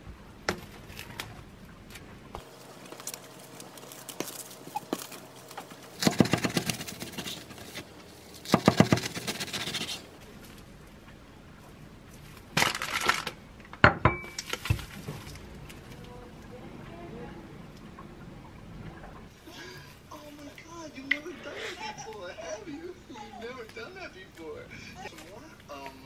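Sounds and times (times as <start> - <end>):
plastic wrap crinkling: 2.4 - 10.6, 12.2 - 13.4
knife sawing through bread: 6.0 - 10.1.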